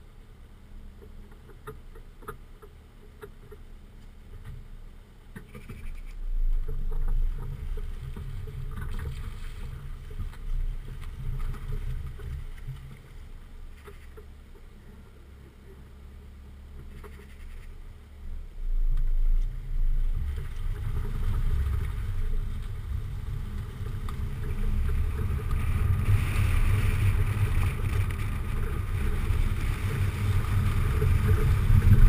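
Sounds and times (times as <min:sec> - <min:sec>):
grit clicking under tyres: 0:00.8 - 0:32.0
tyres rumbling on rough lane: 0:17.9 - 0:32.0
wind buffeting: 0:18.4 - 0:32.0.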